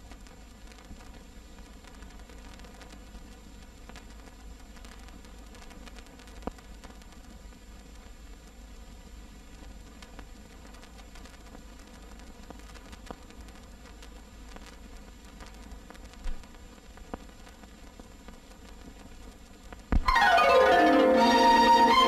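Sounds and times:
film soundtrack hiss: 0.0 - 22.0
orchestral film music with strings: 20.1 - 22.0.

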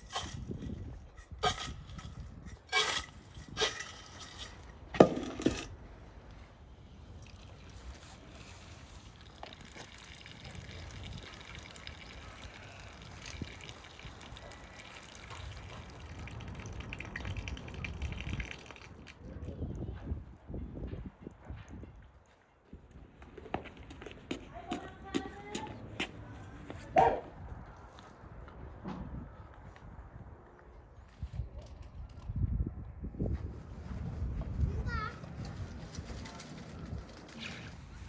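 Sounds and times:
water trickling into basin: 7.1 - 19.6.

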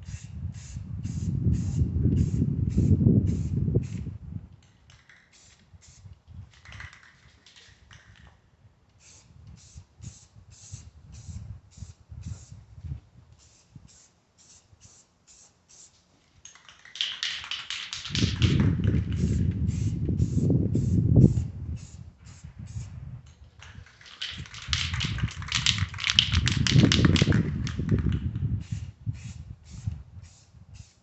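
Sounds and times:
wind rumble on microphone: 0.0 - 4.6, 5.6 - 13.9, 18.0 - 31.0
spray can ball rattling: 4.6 - 8.3, 9.0 - 12.4, 13.4 - 31.0.

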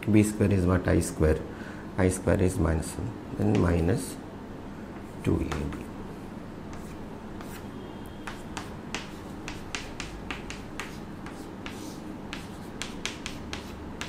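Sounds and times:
low background hum: 0.0 - 14.0
chalk tapping on chalkboard: 3.4 - 3.8, 5.4 - 5.9, 6.7 - 14.0.

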